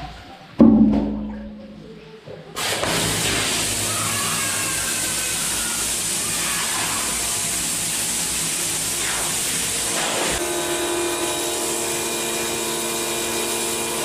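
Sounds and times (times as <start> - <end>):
motor and pump hum: 2.6 - 14.0
pressure washer water jet hiss: 2.6 - 14.0.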